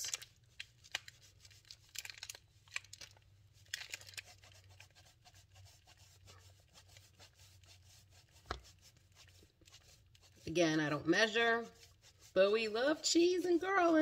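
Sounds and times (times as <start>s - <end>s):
cheese grating on a rasp grater: 3.8s - 14.0s.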